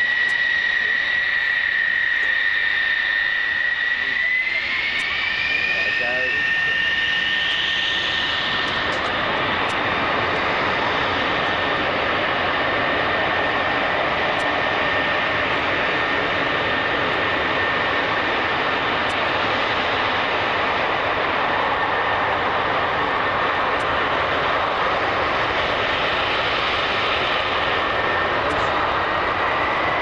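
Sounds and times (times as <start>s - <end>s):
faint high whine: 0.0s - 30.0s
jet engines running: 0.0s - 30.0s.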